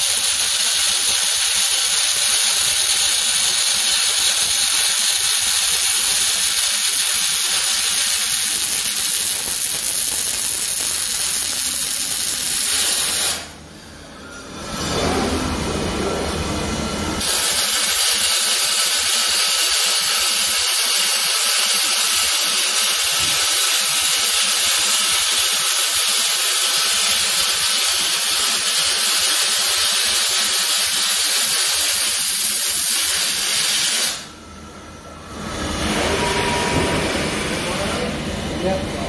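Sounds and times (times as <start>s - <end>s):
welding arc crackling and hissing: 0.0s - 13.6s, 17.2s - 34.3s.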